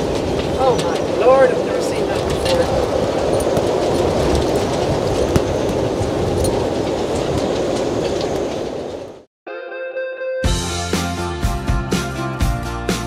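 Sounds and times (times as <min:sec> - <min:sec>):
storm wind buffeting microphone: 0:00.0 - 0:09.3.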